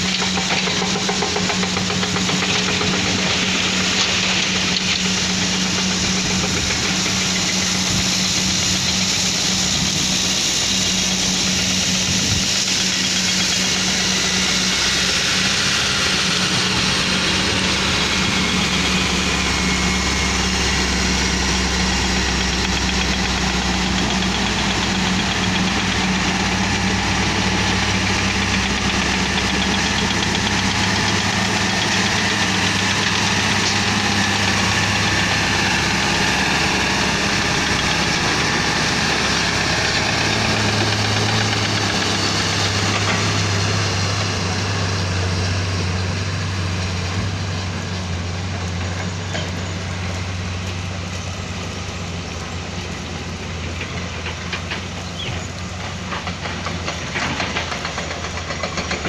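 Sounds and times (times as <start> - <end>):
diesel truck engine driving by: 0.0 - 59.0.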